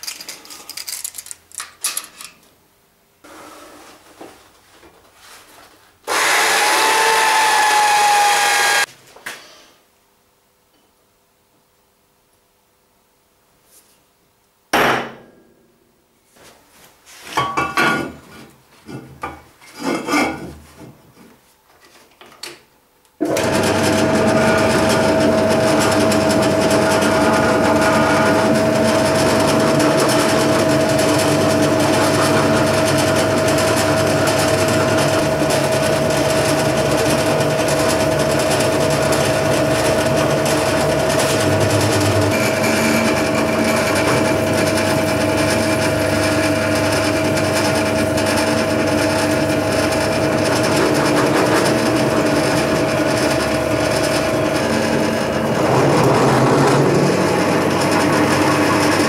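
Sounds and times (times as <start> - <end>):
drill press whining: 6.1 - 8.9, 23.2 - 59.0.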